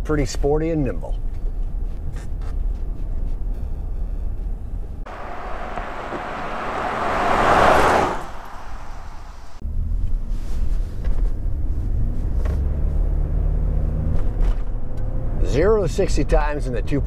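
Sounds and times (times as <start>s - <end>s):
low rumble of moving truck: 4.6s - 9.6s
pickup truck driving past: 5.1s - 9.6s.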